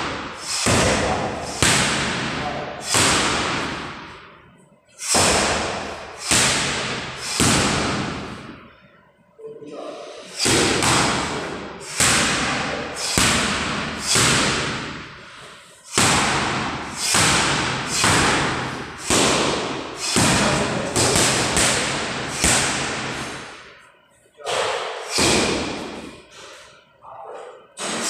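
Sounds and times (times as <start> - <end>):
boxing gloves smacking mitts: 0.1 - 4.1, 5.0 - 8.6, 10.4 - 15.0, 15.9 - 23.5.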